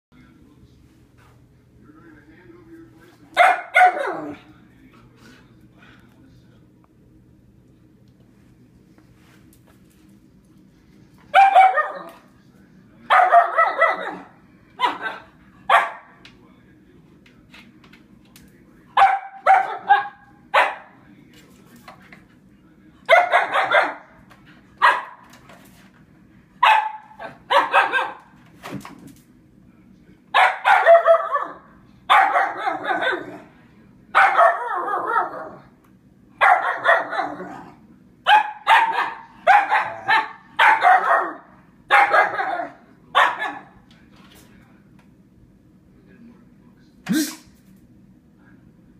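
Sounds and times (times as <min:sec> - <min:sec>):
dog barking: 0:03.4 - 0:04.4, 0:11.3 - 0:12.2, 0:13.1 - 0:16.2, 0:19.0 - 0:21.0, 0:23.1 - 0:24.1, 0:24.8 - 0:25.2, 0:26.6 - 0:28.3, 0:30.4 - 0:33.4, 0:34.2 - 0:35.6, 0:36.4 - 0:37.6, 0:38.3 - 0:43.8.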